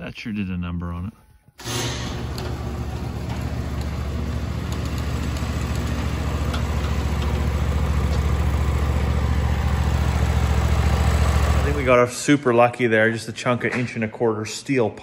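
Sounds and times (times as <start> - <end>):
engine idling: 1.7 - 12.0.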